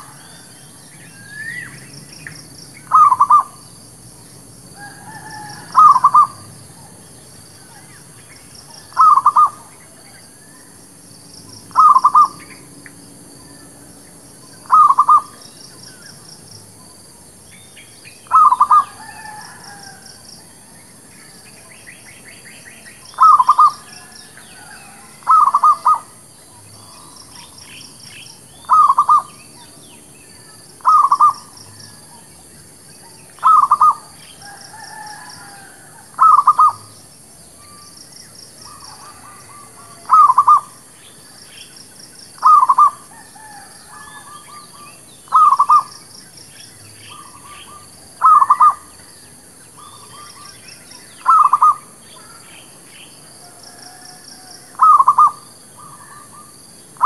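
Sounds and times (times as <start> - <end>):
dove cooing: 2.8 - 3.6, 4.8 - 7.0, 8.8 - 9.7, 11.7 - 12.6, 14.6 - 15.4, 18.2 - 20.0, 23.1 - 26.2, 28.6 - 29.4, 30.8 - 32.3, 33.1 - 36.9, 38.6 - 40.8, 42.4 - 45.9, 47.1 - 48.9, 51.2 - 52.4, 53.7 - 56.5
small birds chirping: 20.9 - 34.4, 44.0 - 53.1.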